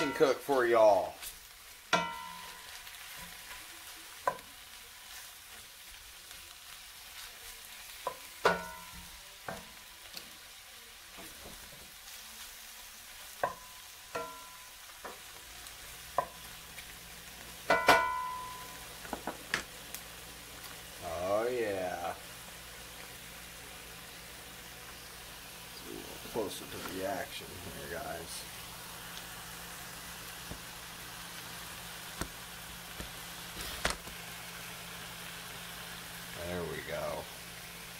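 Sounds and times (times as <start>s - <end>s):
mushrooms sizzling in butter: 0.0s - 37.9s
spatula knocking and scraping pan: 1.9s - 3.6s, 8.0s - 9.7s, 13.4s - 15.3s, 16.1s - 16.5s, 17.6s - 19.5s.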